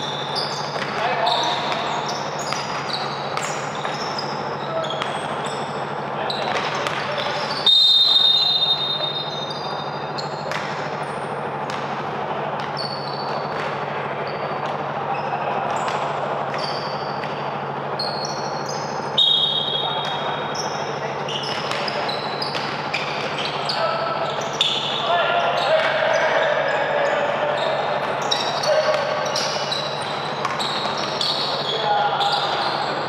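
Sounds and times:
sneakers squeaking on court: 0.0s - 7.7s, 8.6s - 11.9s, 19.6s - 26.8s, 27.4s - 33.0s
basketball bouncing: 10.5s - 10.9s, 30.2s - 31.1s.

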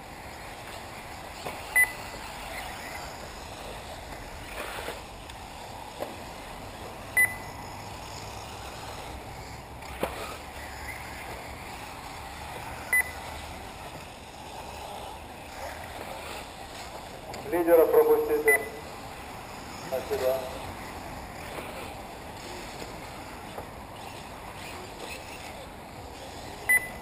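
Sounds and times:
high electronic beeps: 1.7s - 2.0s, 7.2s - 7.6s, 12.9s - 13.3s, 18.4s - 18.8s, 26.7s - 27.0s.

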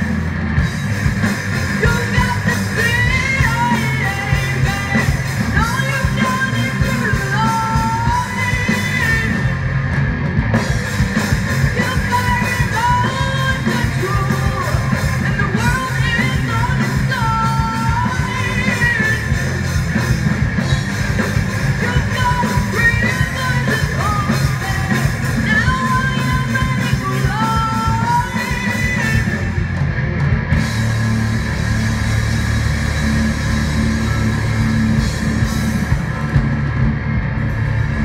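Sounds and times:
bass: 0.0s - 38.0s
distorted electric guitars: 0.0s - 38.0s
driving drum beat: 0.0s - 38.0s
woman singing: 1.8s - 9.5s, 11.7s - 19.5s, 21.8s - 29.5s.

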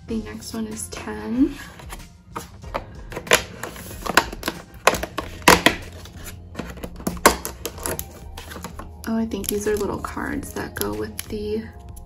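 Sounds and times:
cardboard taps and clicks: 1.9s - 9.9s.

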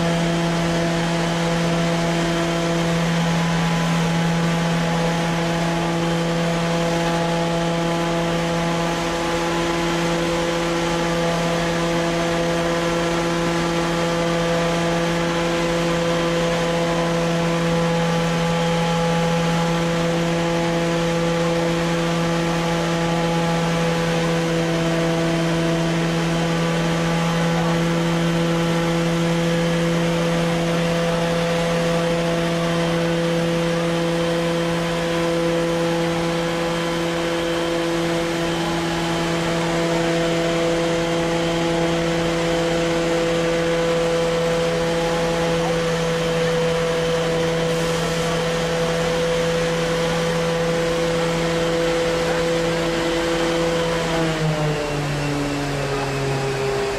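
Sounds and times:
turbine fan drone: 0.0s - 56.9s.

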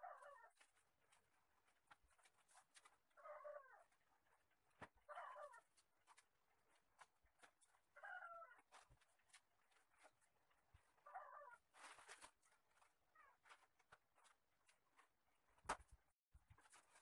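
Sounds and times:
faint wavering animal calls: 0.0s - 0.7s, 3.2s - 4.0s, 5.0s - 5.8s, 7.9s - 8.9s, 11.0s - 11.7s.

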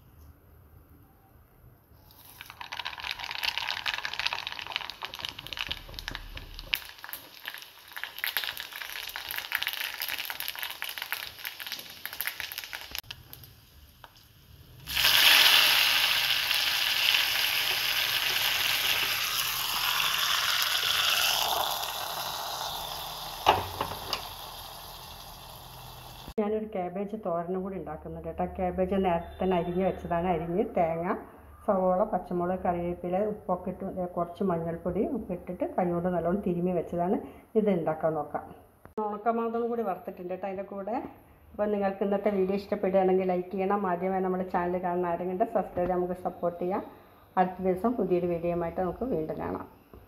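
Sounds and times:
mustard seeds popping in oil: 2.1s - 25.4s
loud sizzle: 2.1s - 26.4s.

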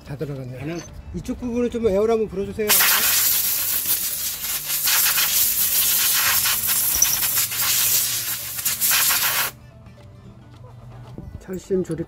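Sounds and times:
compressed air gun hissing: 2.7s - 9.6s.

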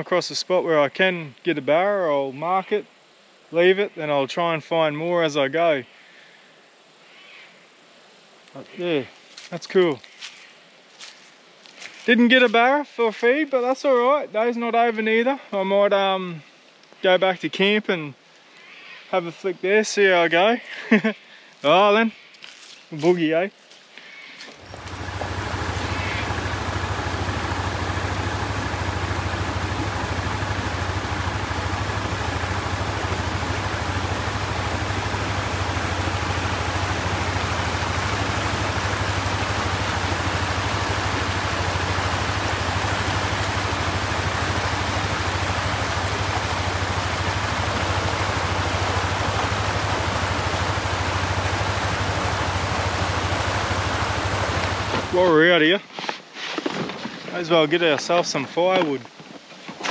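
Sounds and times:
water rushing over rapids: 24.6s - 55.4s.

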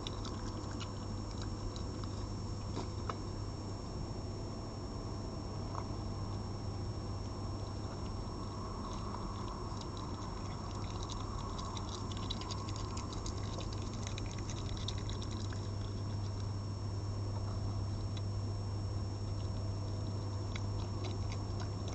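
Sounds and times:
fox chewing and lapping: 0.0s - 3.2s, 7.6s - 16.6s, 19.2s - 21.9s
steady low hum: 0.0s - 21.9s.

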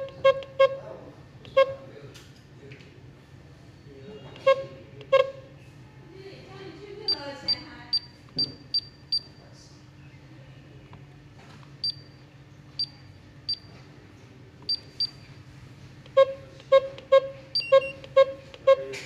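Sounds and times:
lower control panel beeps: 7.1s - 9.3s, 11.8s - 12.2s, 12.8s - 13.7s, 14.6s - 15.2s, 16.1s - 18.9s
short high keypad beeps: 16.2s - 18.9s.

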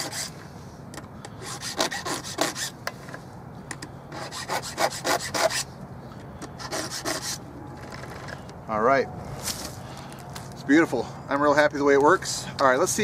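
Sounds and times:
file rasping on chainsaw chain: 0.0s - 0.3s, 1.4s - 2.8s, 4.1s - 5.7s, 6.6s - 7.4s.

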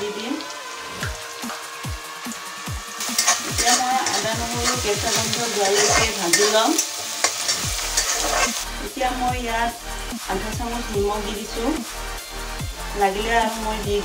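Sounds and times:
spices sizzling in hot oil: 0.0s - 14.0s
spatula stirring: 3.0s - 8.7s.

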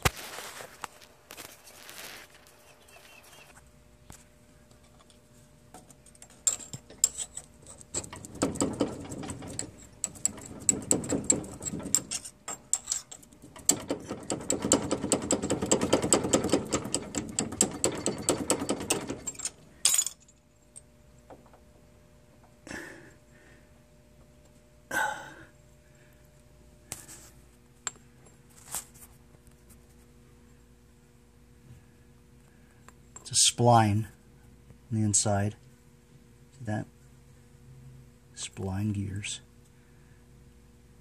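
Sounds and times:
screwdriver clicking and scraping metal: 5.8s - 19.6s.

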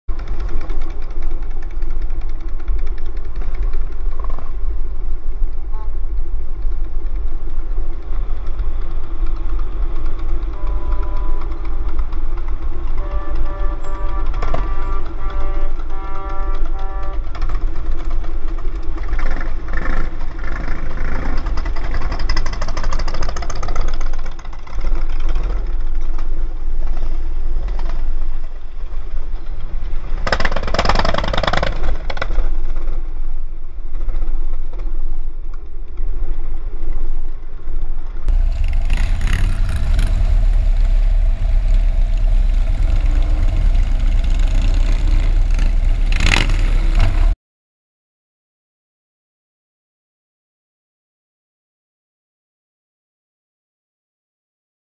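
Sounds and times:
motorcycle engines rumbling: 0.1s - 28.9s, 38.3s - 47.4s.

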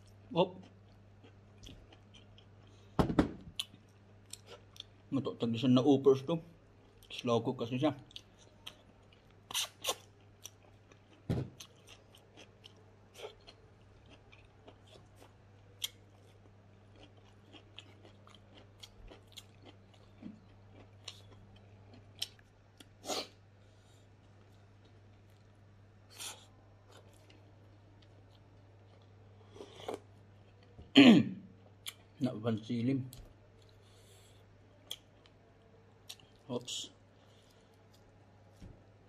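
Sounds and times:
close chewing and mouth smacks: 0.6s - 2.8s, 8.0s - 23.0s, 34.8s - 35.4s.

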